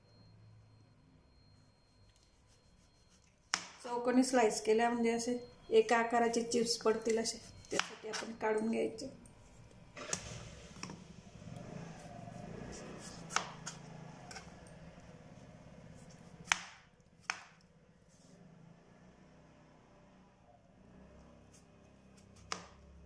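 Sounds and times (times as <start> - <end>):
knife slicing potato: 7.0 - 8.4, 11.6 - 14.6, 16.0 - 17.6, 21.5 - 22.8.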